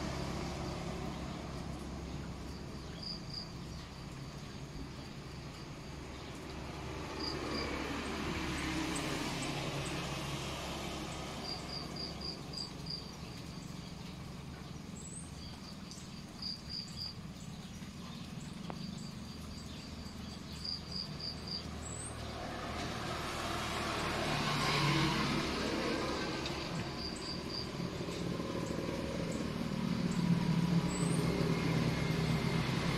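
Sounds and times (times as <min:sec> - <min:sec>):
crickets chirping: 0:00.0 - 0:32.9.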